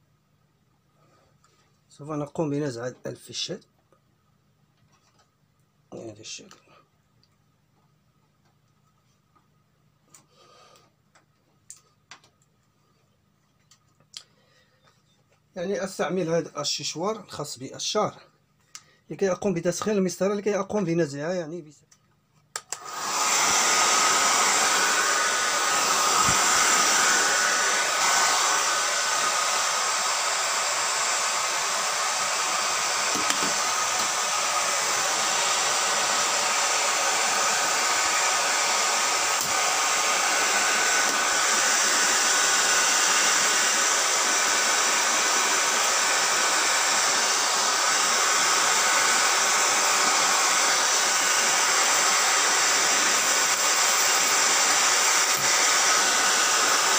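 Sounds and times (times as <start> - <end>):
hair dryer running: 22.6 - 56.9.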